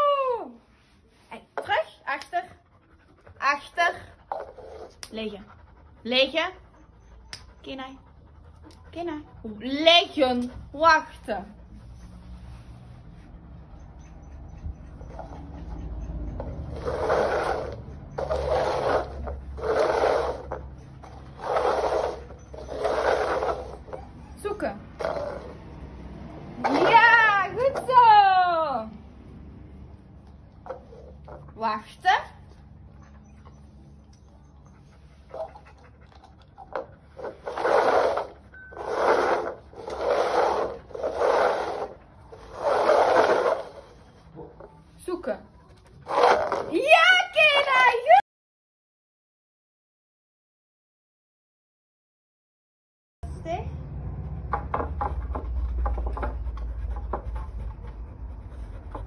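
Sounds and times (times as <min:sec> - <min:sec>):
plastic cups scraping on tile: 0:04.2 - 0:05.1, 0:16.5 - 0:24.0, 0:24.9 - 0:25.6, 0:26.6 - 0:28.0, 0:30.6 - 0:31.5, 0:36.1 - 0:44.8, 0:46.0 - 0:46.9.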